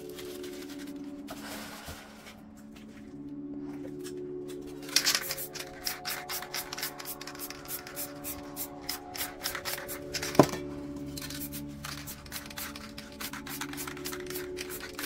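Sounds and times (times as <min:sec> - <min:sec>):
background music with held notes: 0:00.0 - 0:15.0.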